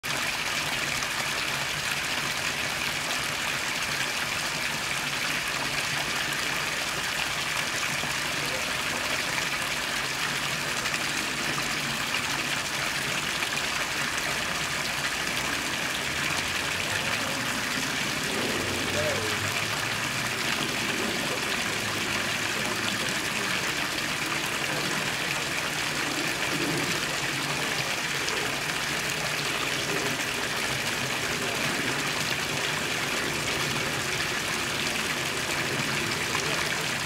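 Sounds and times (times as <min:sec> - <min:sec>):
fountain water splashing: 0:00.0 - 0:37.0.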